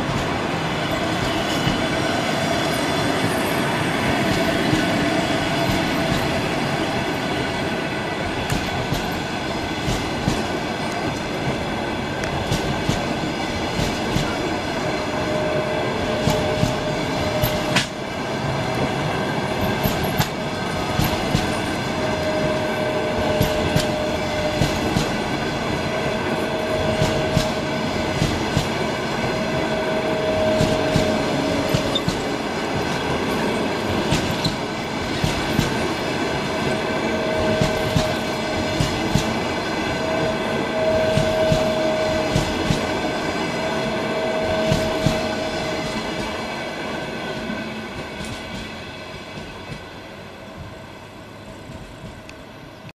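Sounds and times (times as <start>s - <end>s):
train wheel squeal: 0.0s - 11.4s, 12.4s - 46.4s
train wheels clicking over rail joints: 4.0s - 14.9s, 16.0s - 43.3s, 44.5s - 46.4s, 48.0s - 50.0s.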